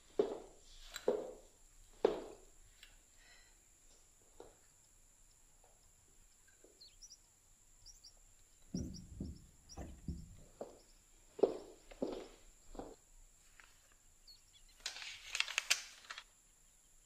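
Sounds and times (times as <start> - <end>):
footsteps on wooden floor: 0.0 - 2.4, 8.7 - 13.0
faint bird chirps: 4.6 - 11.1, 14.2 - 14.8.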